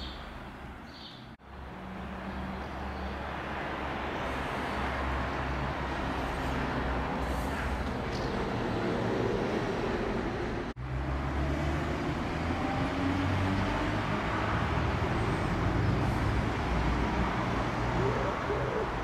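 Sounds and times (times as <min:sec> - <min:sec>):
bird chirps: 0:00.0 - 0:01.3
traffic noise: 0:00.0 - 0:19.0.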